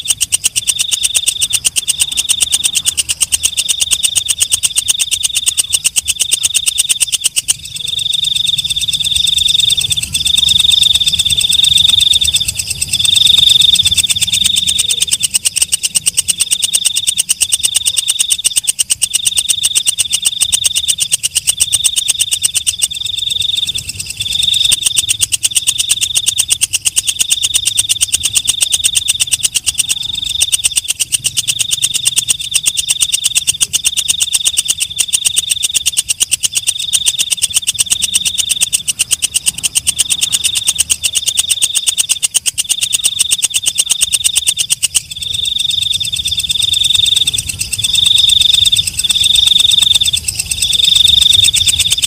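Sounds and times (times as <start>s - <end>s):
katydid stridulating: 0.0s - 52.0s.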